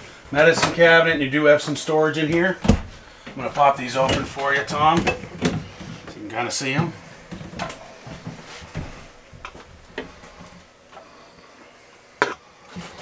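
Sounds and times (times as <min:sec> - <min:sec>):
wooden cabinet doors clicking: 0:02.3 - 0:02.9.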